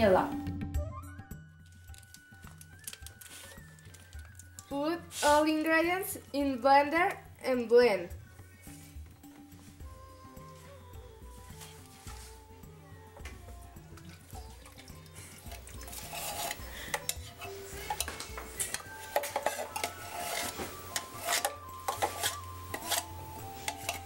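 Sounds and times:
background music: 0.0 - 24.0
knife scraping metal can: 15.4 - 24.0.

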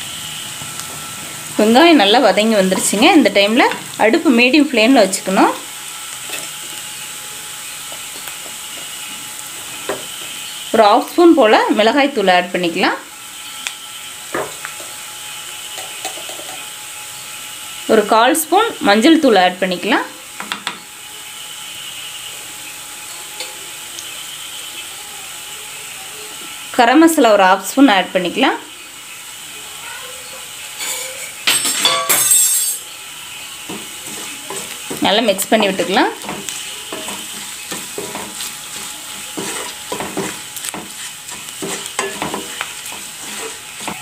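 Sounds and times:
onions sizzling in oil: 0.0 - 44.0
spatula scraping a pan: 33.6 - 44.0.

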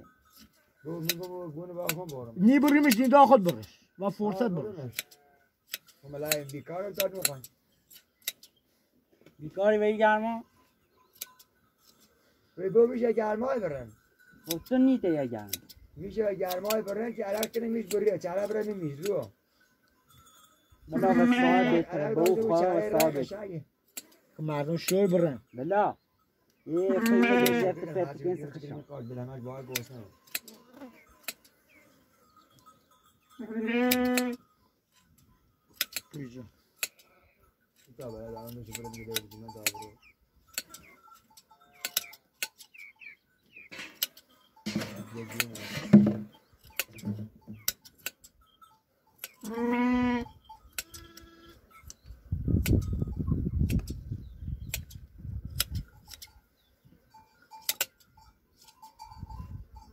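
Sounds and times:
hand shears clicking: 0.3 - 3.7, 4.9 - 8.6, 11.1 - 12.0, 14.4 - 14.8, 15.4 - 19.3, 22.2 - 23.2, 23.9 - 24.2, 29.7 - 31.6, 33.9 - 36.2, 36.8 - 37.1, 37.8 - 42.9, 43.7 - 46.0, 46.6 - 48.4, 49.2 - 49.6, 50.6 - 53.0, 53.6 - 54.0, 54.6 - 56.4, 57.6 - 59.0
sheep bleating: 4.5 - 5.6, 20.9 - 23.2, 26.7 - 28.2, 33.4 - 34.4, 49.4 - 51.6
sharp clicks: 4.9 - 8.6, 35.7 - 36.2, 41.8 - 42.8, 46.6 - 48.3, 53.6 - 54.0, 54.6 - 56.3, 57.6 - 58.0.

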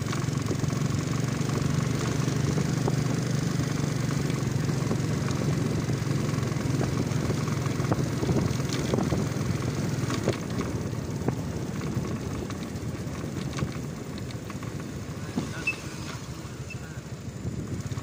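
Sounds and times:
motorcycle engine running: 0.0 - 18.0
wind and road noise: 0.0 - 18.0
light clicks and rattles: 10.0 - 15.6.

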